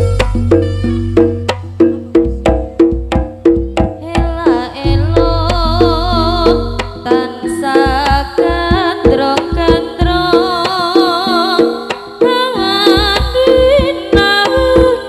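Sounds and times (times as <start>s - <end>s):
wavering melody line: 0.0s - 2.9s
ringing gamelan tones: 0.0s - 8.0s
hand drum strokes: 0.0s - 15.0s.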